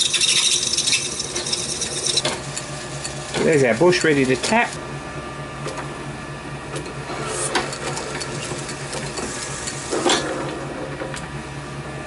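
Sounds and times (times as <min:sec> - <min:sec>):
metallic clatter of tooling: 0:00.0 - 0:02.4
lathe humming: 0:00.0 - 0:10.0.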